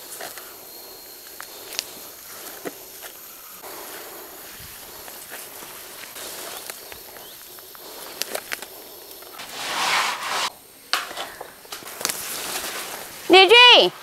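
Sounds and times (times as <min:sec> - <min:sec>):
steady outdoor hiss: 0:00.0 - 0:14.0
garden plants rustling: 0:01.2 - 0:14.0
light clicks of picking vegetables: 0:11.0 - 0:13.1.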